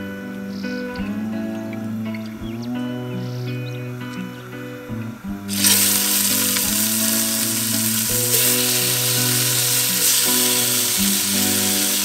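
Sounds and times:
background music with held tones: 0.0 - 12.0
food sizzling in hot oil: 5.5 - 12.0.

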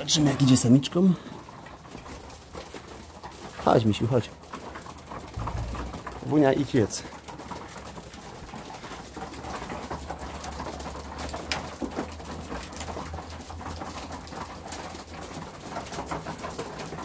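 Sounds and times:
sharp knock: 5.4 - 6.2.

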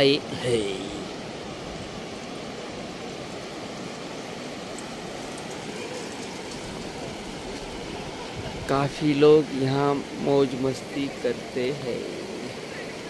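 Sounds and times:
sea surf washing onto beach: 0.0 - 13.0.

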